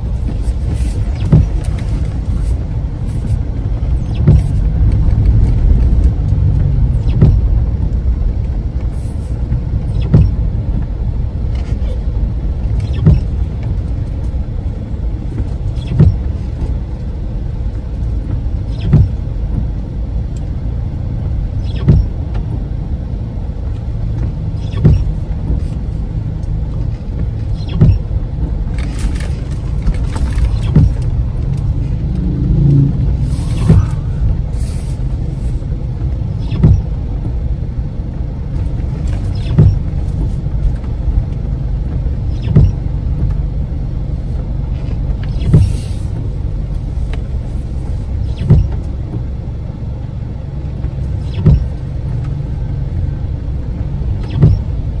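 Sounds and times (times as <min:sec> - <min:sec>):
car road and engine rumble: 0:00.0 - 0:55.0
windscreen wipers knocking: 0:00.0 - 0:55.0
tyre spray hiss: 0:33.2 - 0:35.6.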